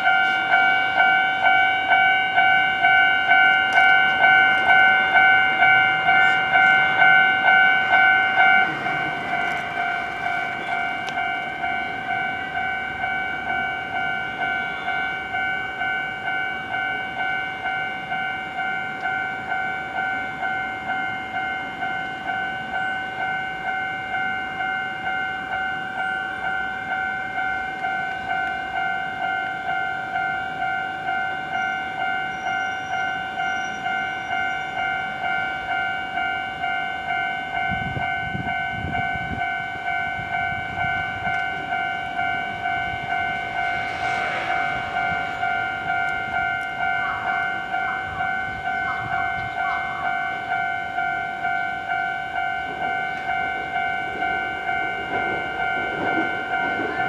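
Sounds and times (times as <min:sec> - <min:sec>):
level-crossing bell ringing: 0:00.0 - 0:57.0
low rumble: 0:42.0 - 0:48.6.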